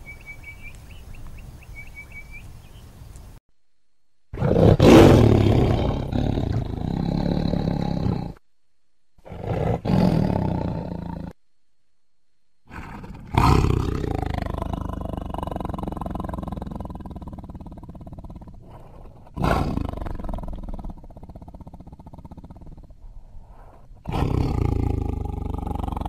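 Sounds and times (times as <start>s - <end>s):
tiger roaring: 4.3s - 8.4s, 9.2s - 11.4s, 12.7s - 26.0s.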